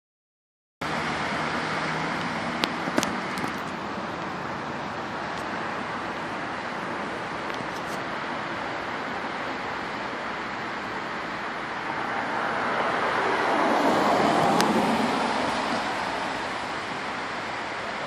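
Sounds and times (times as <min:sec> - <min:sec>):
wind rushing: 0:11.7 - 0:17.3.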